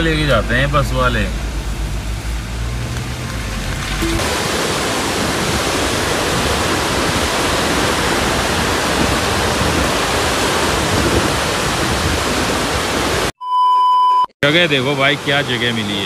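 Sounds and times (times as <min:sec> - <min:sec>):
river water rushing: 0:01.4 - 0:13.3.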